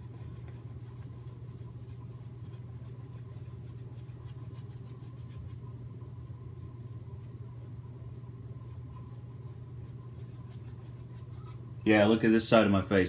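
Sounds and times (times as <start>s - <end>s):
shaving brush scratchy strokes: 0.0s - 5.8s, 6.9s - 11.7s
steady low hum: 0.0s - 13.0s.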